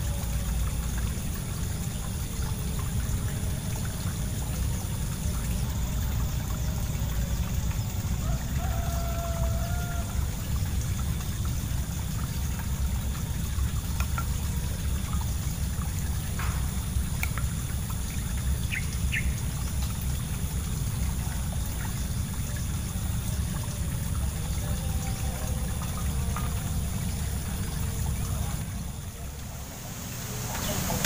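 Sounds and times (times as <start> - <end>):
trickling water: 0.0 - 31.0
bird chirps: 18.6 - 19.4.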